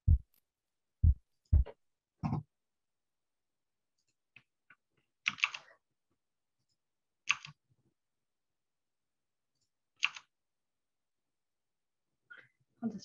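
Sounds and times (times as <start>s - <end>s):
computer keys clicking: 5.2s - 5.7s, 7.2s - 7.6s, 10.0s - 10.3s.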